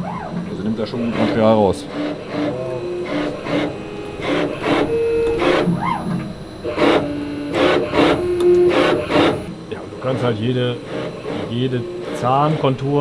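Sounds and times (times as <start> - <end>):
stepper motors humming: 0.0 - 13.0
tool scraping metal shaft: 0.5 - 9.5.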